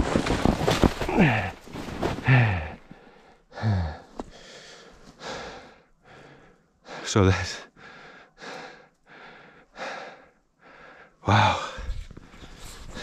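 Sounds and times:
man breathing hard: 2.2 - 7.1, 7.7 - 13.0.

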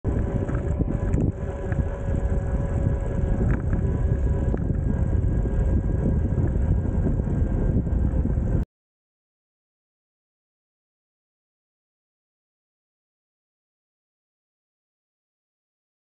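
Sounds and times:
low rumble of riding on pavement: 0.0 - 8.7
wind noise on microphone: 0.0 - 8.7
faint steady hum: 0.1 - 8.6.

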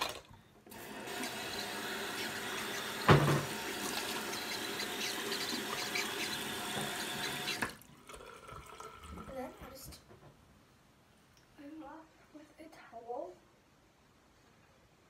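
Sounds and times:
bathroom tap running: 0.0 - 9.8
loud thump: 3.0 - 3.6.

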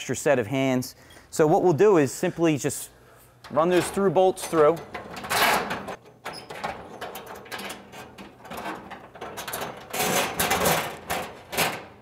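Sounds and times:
scraping handling noise: 3.1 - 12.0
bolts clicking and rattling: 3.4 - 12.0.

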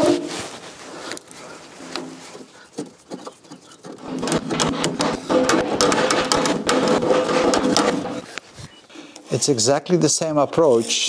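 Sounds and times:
hammer tapping sheet metal: 3.8 - 8.3.

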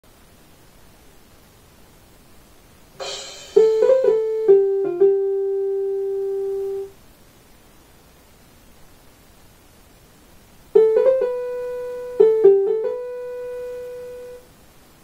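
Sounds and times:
piano-toned keyboard notes: 3.0 - 6.9, 10.8 - 14.4.

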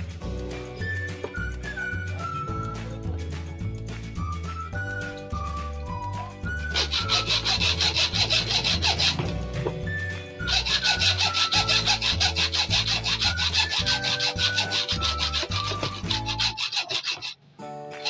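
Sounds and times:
background music with bass: 0.0 - 16.6
abrasive rubbing strokes: 6.6 - 17.4.

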